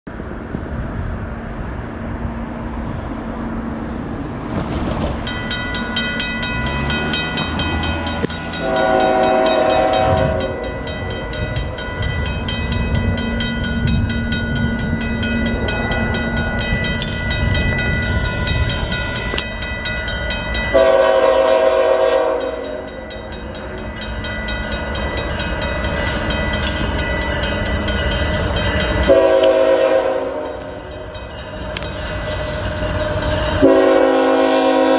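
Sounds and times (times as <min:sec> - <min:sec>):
train rumbling: 0:00.1 - 0:34.9
level crossing bell ringing: 0:05.2 - 0:29.3
locomotive air horn blasts: 0:08.6 - 0:10.9, 0:20.7 - 0:22.9, 0:29.0 - 0:30.8, 0:33.2 - 0:34.9.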